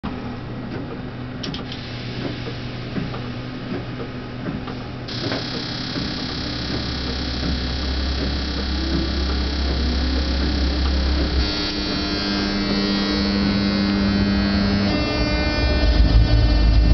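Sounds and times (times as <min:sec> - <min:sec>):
locomotive running noise: 0:00.0 - 0:16.9
multi-tone electrical whine: 0:00.0 - 0:16.9
steady electrical hum: 0:00.1 - 0:16.9
deep hum: 0:01.8 - 0:16.9
sharp ticks: 0:05.1 - 0:13.4.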